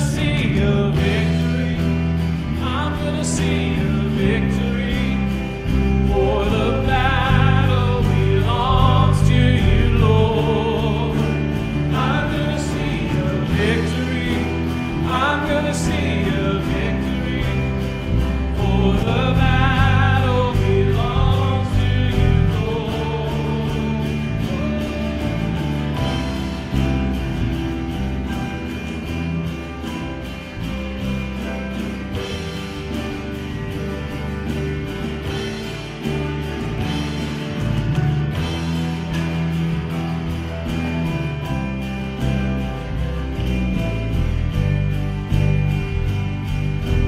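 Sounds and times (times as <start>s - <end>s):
voices singing: 0.0s - 26.5s
live band playing: 0.0s - 47.0s.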